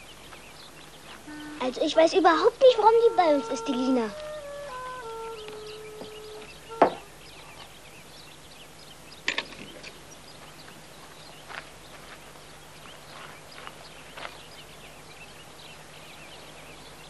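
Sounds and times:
soundtrack music note: 0:01.3 - 0:07.0
loud knocks: 0:06.8 - 0:07.1.

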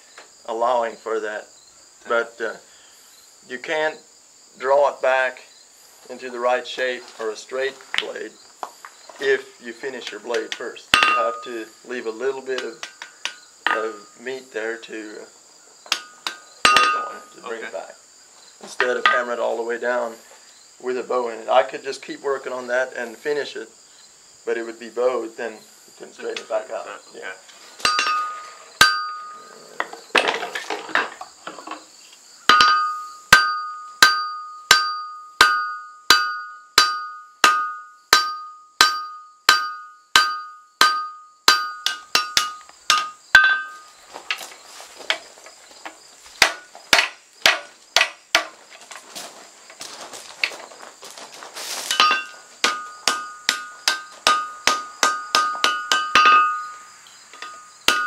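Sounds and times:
hammer striking steel on anvil: 0:10.9 - 0:11.5, 0:15.9 - 0:17.3, 0:27.8 - 0:29.3, 0:32.5 - 0:43.8, 0:51.9 - 0:56.8, 0:57.4 - 0:58.0.

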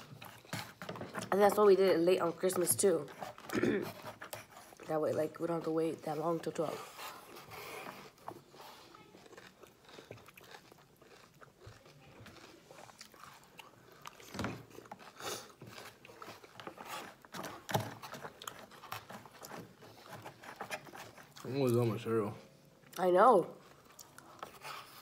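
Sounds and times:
chewing crunchy cereal: 0:00.0 - 0:22.2, 0:22.8 - 0:25.0.

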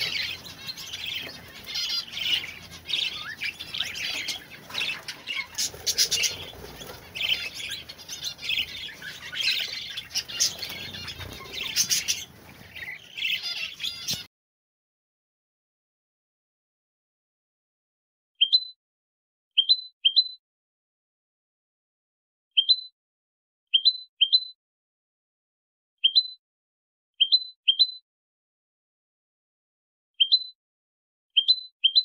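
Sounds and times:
budgerigars chirping: 0:00.0 - 0:14.3.

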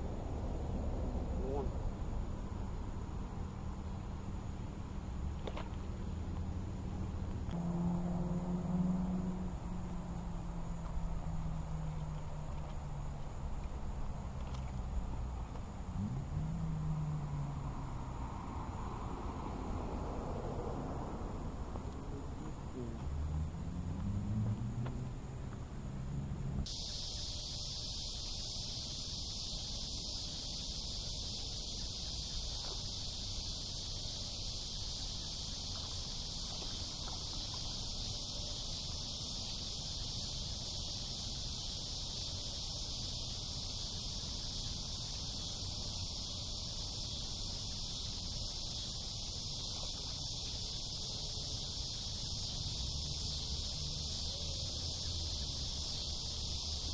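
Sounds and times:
insects chirping chorus: 0:00.0 - 0:56.9
low hum varying in pitch: 0:07.5 - 0:12.4.

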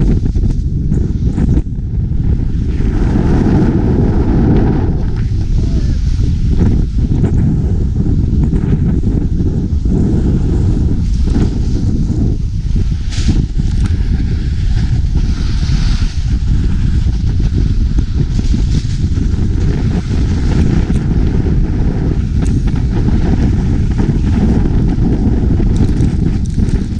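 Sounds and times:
wind rumble on microphone: 0:00.0 - 0:26.9
snowskates sliding on slushy snow: 0:09.3 - 0:26.9.

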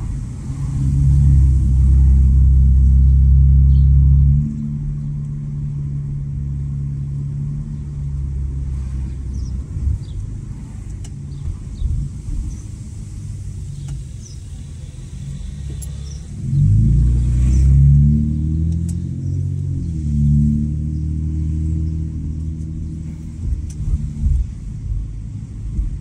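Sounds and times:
car exhaust rumbling and revving: 0:00.0 - 0:26.0.

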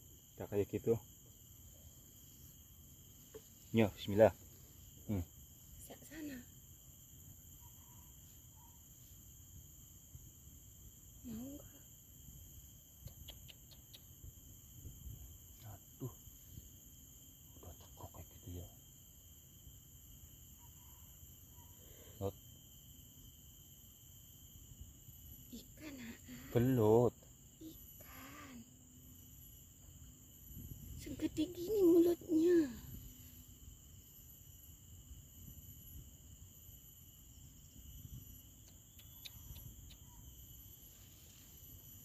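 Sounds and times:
insects chirring: 0:00.0 - 0:42.0
faint ticks: 0:12.9 - 0:14.3, 0:38.6 - 0:40.2.

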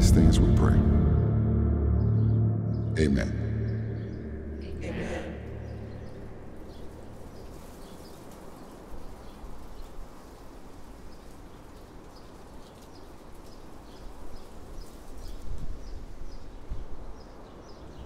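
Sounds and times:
steady low rumble: 0:00.0 - 0:07.9
small birds chirping: 0:02.2 - 0:18.0.

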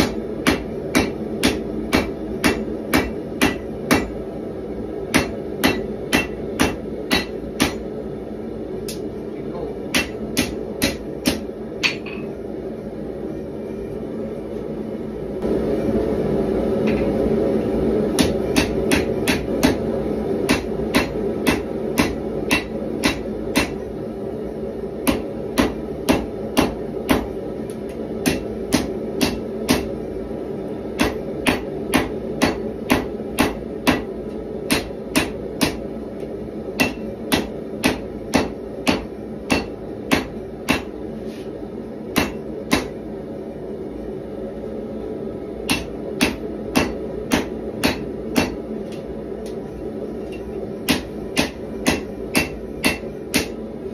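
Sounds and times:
hammer striking steel on anvil: 0:00.0 - 0:04.2, 0:05.1 - 0:07.9, 0:09.8 - 0:12.4, 0:18.1 - 0:19.9, 0:20.5 - 0:23.9, 0:25.0 - 0:30.0, 0:31.0 - 0:41.0, 0:42.1 - 0:43.0, 0:45.6 - 0:49.6, 0:50.2 - 0:53.6
forge burner roaring: 0:00.0 - 0:53.9.

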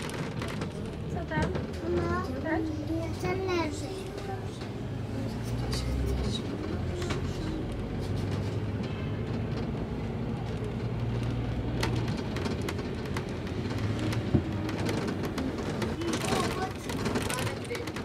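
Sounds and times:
bus engine humming: 0:00.0 - 0:18.0
road and traffic noise: 0:00.0 - 0:18.0
small rattles: 0:05.6 - 0:18.0.

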